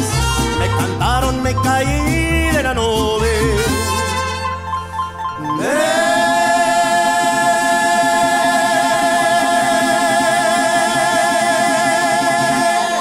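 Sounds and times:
group singing a long note: 0:05.4 - 0:13.0.

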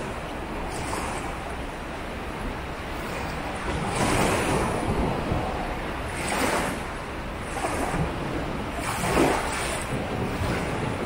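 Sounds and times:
surf breaking on beach: 0:02.9 - 0:11.0.

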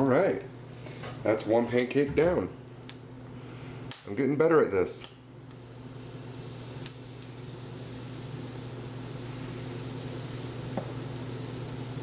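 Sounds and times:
batter sizzling in a frying pan: 0:05.5 - 0:12.0.

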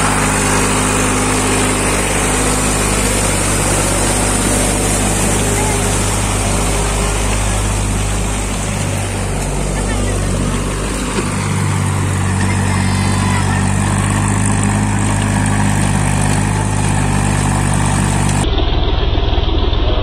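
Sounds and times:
tractor engine running: 0:00.0 - 0:20.0.

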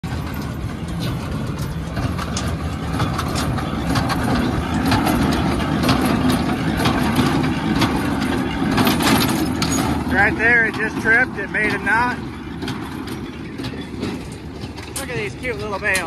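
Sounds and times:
tractor engine droning: 0:00.0 - 0:16.0.

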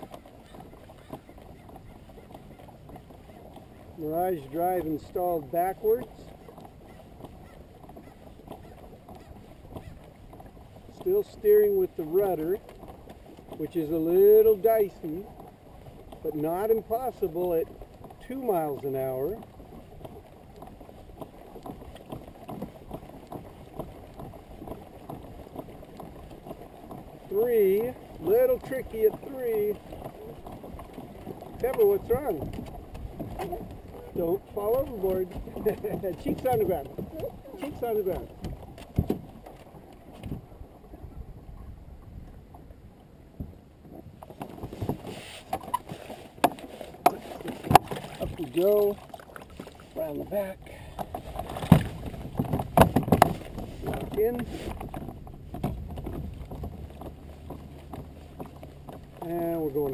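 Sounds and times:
water lapping against kayak hull: 0:00.0 - 0:59.9
knocks on kayak hull: 0:38.4 - 0:39.4, 0:46.4 - 0:48.4, 0:51.0 - 0:57.1
plastic and metal knocks and clicks: 0:51.0 - 0:54.2.

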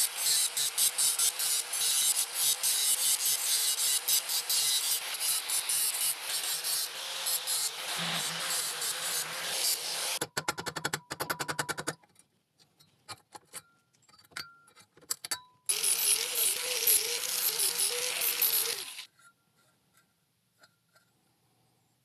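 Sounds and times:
angle grinder cutting steel: 0:00.0 - 0:10.2, 0:15.7 - 0:19.1.

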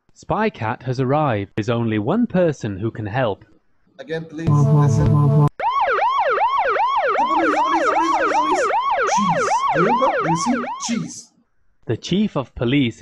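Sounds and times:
cartoon siren wailing: 0:04.5 - 0:11.3.

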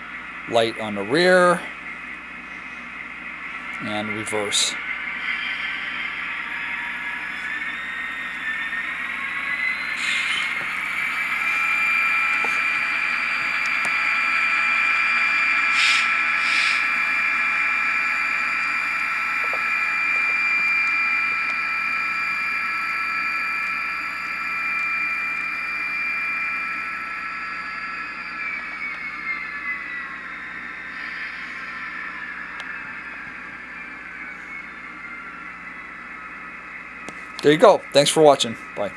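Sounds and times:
model locomotive diesel engine whine: 0:00.0 - 0:38.9
short hisses: 0:15.7 - 0:16.8.

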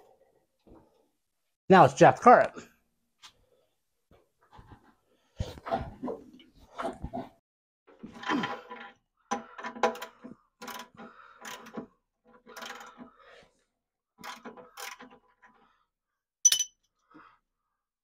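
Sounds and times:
sharp metallic clink: 0:16.5 - 0:16.7.

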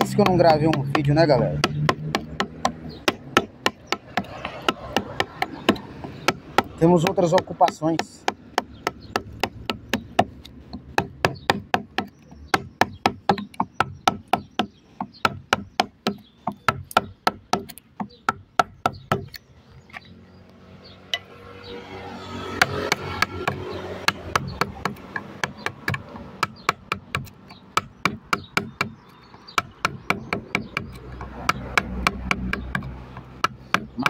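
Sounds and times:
gouge struck with knocks: 0:00.0 - 0:19.4, 0:22.6 - 0:34.0
gouge scraping through wood: 0:00.1 - 0:07.8.

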